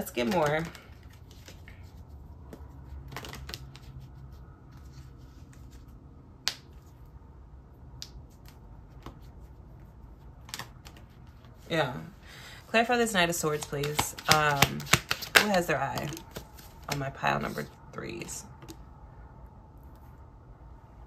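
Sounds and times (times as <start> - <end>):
cards shuffled and flicked: 0.0 - 7.0, 8.0 - 11.6, 13.4 - 17.7.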